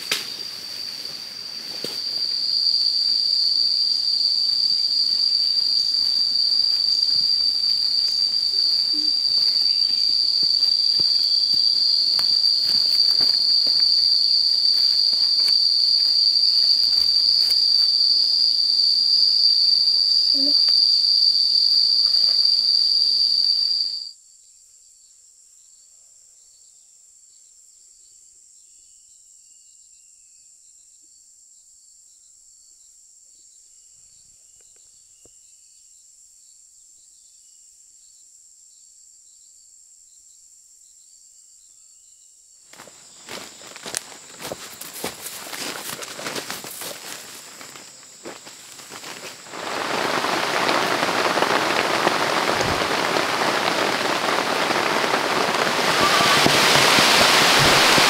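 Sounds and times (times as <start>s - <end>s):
high-pitched insect chorus: 0.0s - 58.0s
footsteps crackling: 5.7s - 17.9s, 42.8s - 58.0s.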